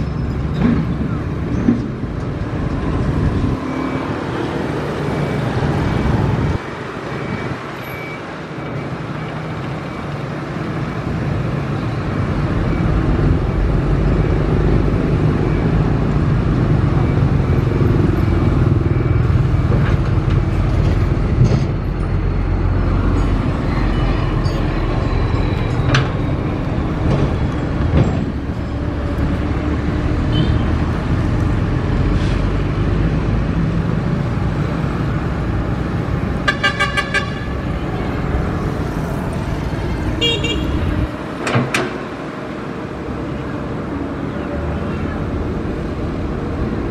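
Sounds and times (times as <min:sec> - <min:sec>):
diesel engines running: 0:00.0 - 0:46.9
vehicle horn toots: 0:40.2 - 0:40.9.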